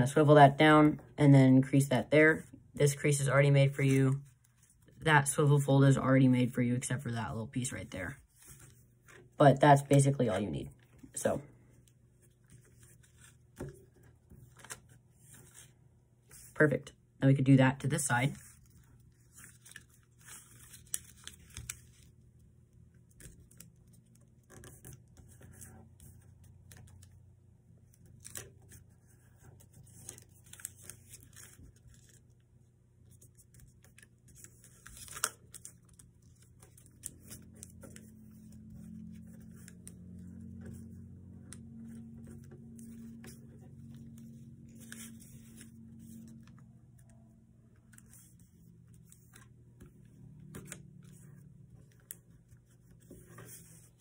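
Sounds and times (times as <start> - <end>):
low steady hum: 0.0 - 54.0
paper rustling and crinkling: 8.1 - 9.4, 11.7 - 16.5, 18.3 - 22.4, 27.8 - 54.0.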